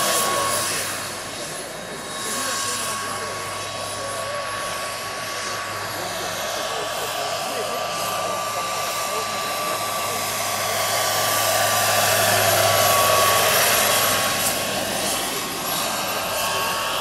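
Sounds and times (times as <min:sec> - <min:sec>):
helicopter rotor noise: 0:00.0 - 0:17.0
turbine engine whining: 0:00.0 - 0:17.0.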